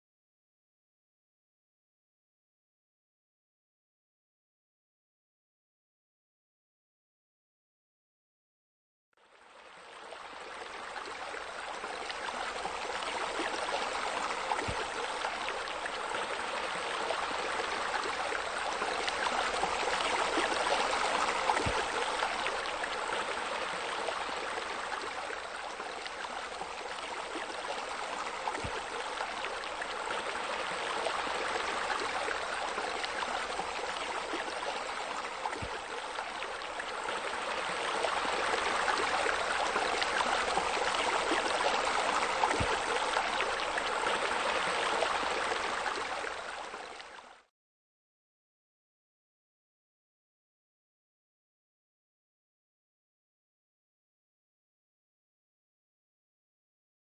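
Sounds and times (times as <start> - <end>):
water splashing into a pool: 18.9 - 22.9.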